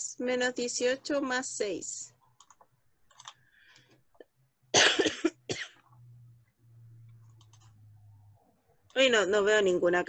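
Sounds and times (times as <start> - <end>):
person coughing: 4.7 - 5.8.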